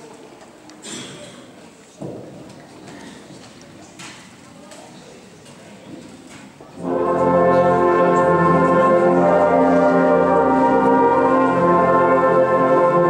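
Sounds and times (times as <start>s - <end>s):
brass band playing held chords: 6.8s - 13.0s.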